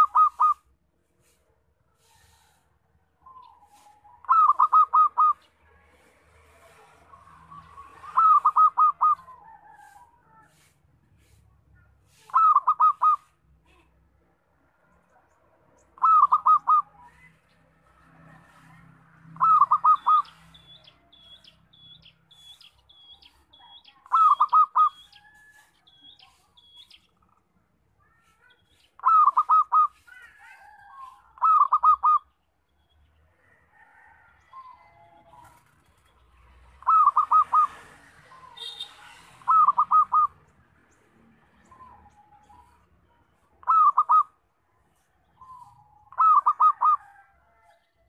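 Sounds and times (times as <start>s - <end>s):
dove cooing: 0.0s - 0.7s, 3.3s - 5.5s, 7.5s - 9.9s, 12.3s - 13.3s, 16.0s - 17.2s, 19.4s - 20.8s, 24.0s - 25.4s, 29.0s - 32.3s, 36.8s - 38.8s, 39.4s - 40.4s, 43.6s - 44.3s, 45.4s - 47.3s.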